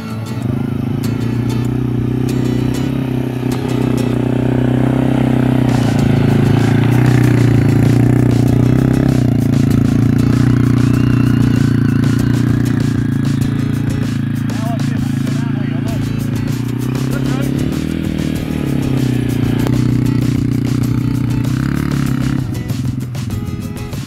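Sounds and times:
small engine idling: 0.0 - 24.0.

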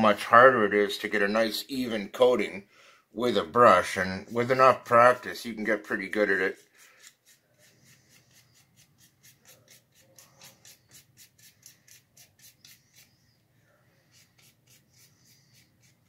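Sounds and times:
sponge strokes on foam: 6.4 - 16.0.

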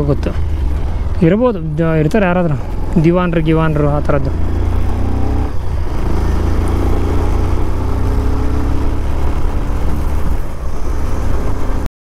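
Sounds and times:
vehicle engine rumble: 0.0 - 11.9.

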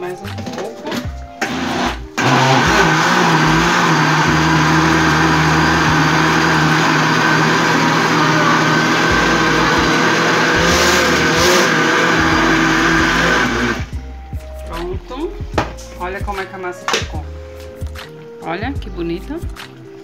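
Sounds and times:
blender motor running: 1.4 - 14.0.

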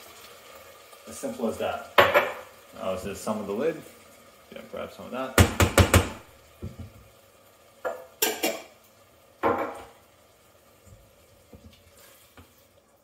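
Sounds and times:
utensils clattering on saucepan: 2.0 - 2.5, 7.8 - 8.8.

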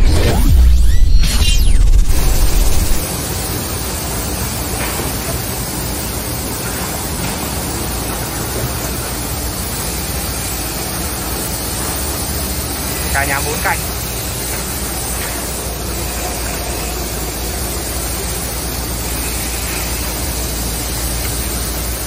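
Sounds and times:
logo sound effect: 0.0 - 3.1
sanding machine running: 2.1 - 22.0.

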